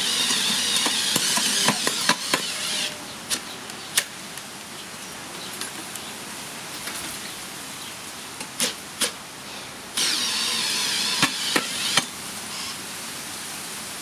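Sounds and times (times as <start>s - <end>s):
drill motor whining: 0.0s - 3.0s, 10.0s - 12.8s.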